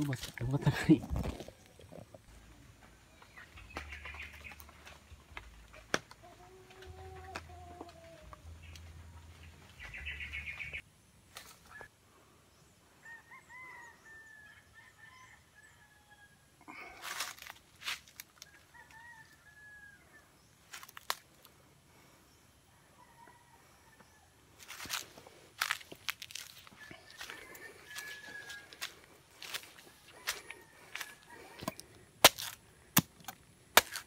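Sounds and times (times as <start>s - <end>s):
roosters crowing: 13.0s - 16.8s, 18.4s - 20.3s, 26.3s - 31.9s.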